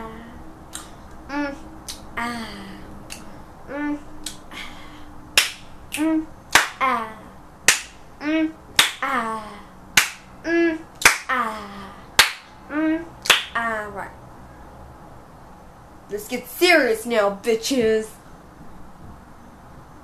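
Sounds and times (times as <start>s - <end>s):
boy making wordless vocal sounds: 0.0s - 7.4s, 8.2s - 9.8s, 10.4s - 14.2s
sharp snaps: 0.7s - 1.2s, 1.8s - 2.1s, 3.1s - 3.3s, 4.2s - 4.5s, 5.4s - 6.8s, 7.7s - 8.0s, 8.8s - 9.1s, 10.0s - 10.3s, 11.0s - 11.3s, 12.2s - 12.5s, 13.2s - 13.6s.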